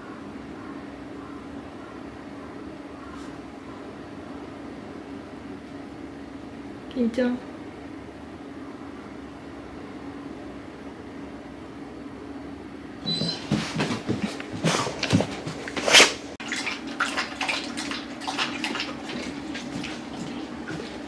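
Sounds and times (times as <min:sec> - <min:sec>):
steady low hum: 0:00.0 - 0:21.0
dog lapping from a metal bowl: 0:16.4 - 0:21.0.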